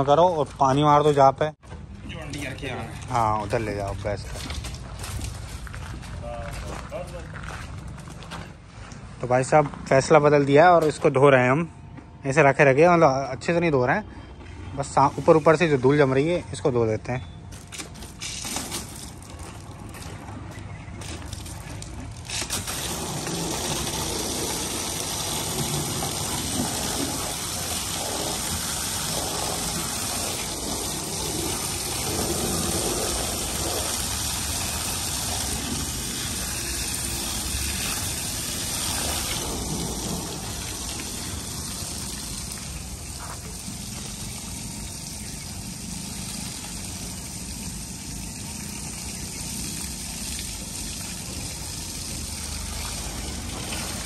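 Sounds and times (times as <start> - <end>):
hose spraying water on vehicle: 17.7 - 20.2, 21.0 - 54.0.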